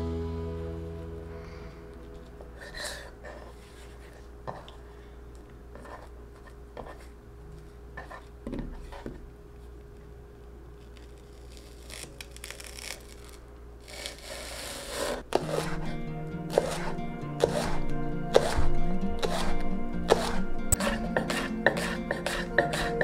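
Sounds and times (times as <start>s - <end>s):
faint steady hum: 0.0s - 15.4s
leek layers tearing apart: 10.8s - 15.2s
knife cutting leeks on wooden board: 13.9s - 23.0s.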